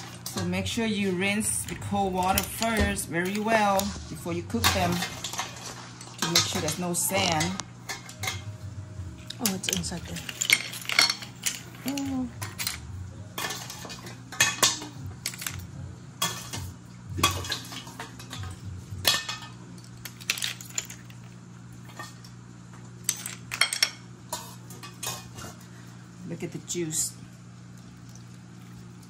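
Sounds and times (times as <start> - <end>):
low steady hum: 0.0 - 29.0
clam shells clinking in bowl: 9.4 - 12.8, 13.4 - 16.6, 17.2 - 21.3, 23.0 - 25.3.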